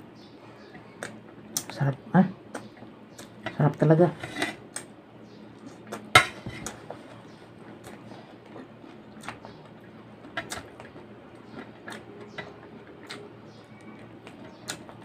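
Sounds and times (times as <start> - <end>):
chewing: 7.6 - 15.0.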